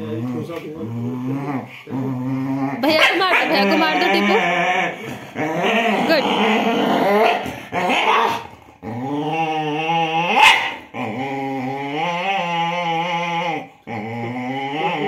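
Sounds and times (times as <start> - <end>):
dog growling: 0.0 - 15.0
dog barking: 2.8 - 3.6, 10.4 - 10.8.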